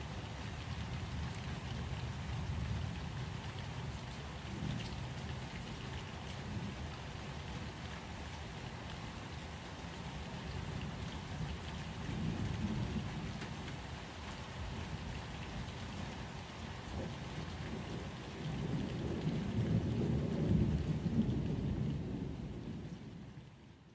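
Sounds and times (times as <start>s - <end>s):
steady rain: 0.0s - 23.9s
low rolling thunder: 12.0s - 13.7s, 16.9s - 23.6s.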